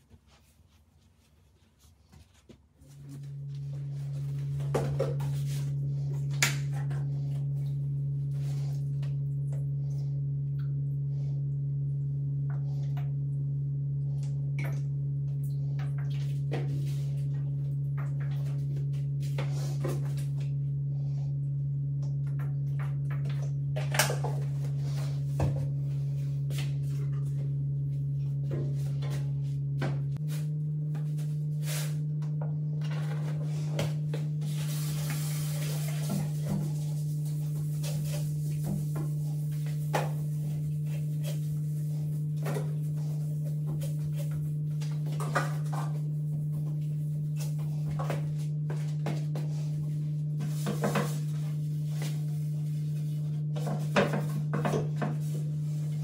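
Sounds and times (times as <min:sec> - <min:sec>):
low drone note: 0:03.0 - 0:43.2.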